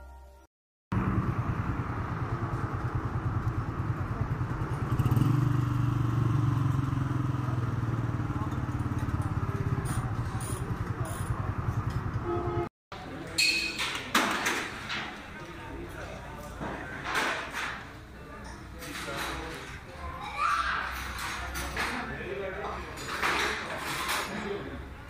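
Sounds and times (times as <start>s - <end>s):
motorcycle engine running: 0.9s - 12.6s.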